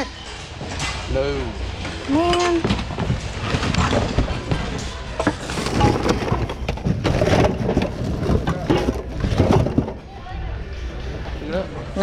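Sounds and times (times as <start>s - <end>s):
hard items knocking and clattering: 1.8s - 10.1s.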